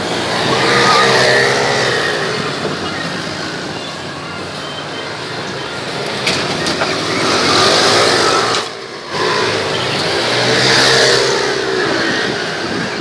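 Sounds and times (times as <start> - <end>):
go-kart engines revving: 0.0 - 13.0.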